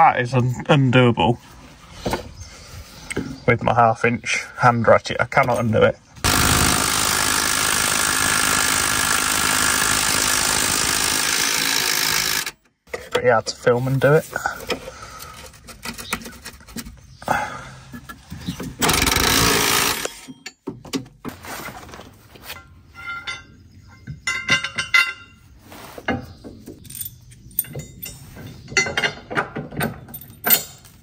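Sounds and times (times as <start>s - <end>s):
cordless ratchet bursts: 6.3s - 12.6s, 18.8s - 20.1s.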